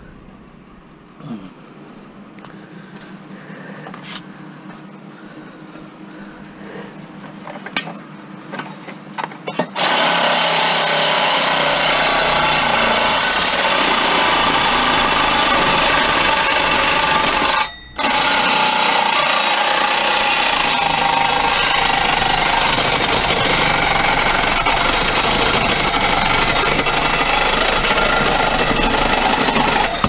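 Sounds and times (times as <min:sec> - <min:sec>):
reciprocating saw cutting: 0:09.8 - 0:30.0.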